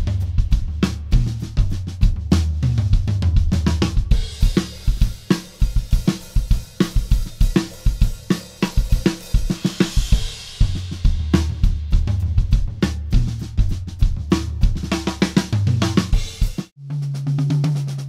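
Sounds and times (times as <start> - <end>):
drum kit groove: 0.0 - 18.0.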